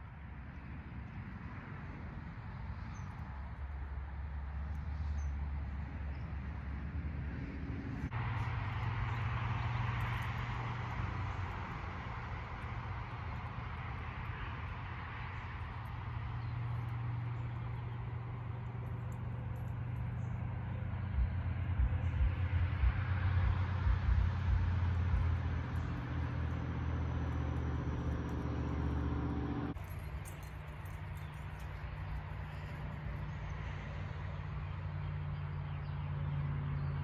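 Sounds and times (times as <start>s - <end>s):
wind buffeting microphone: 5.2s - 34.0s
low machine hum: 7.7s - 37.0s.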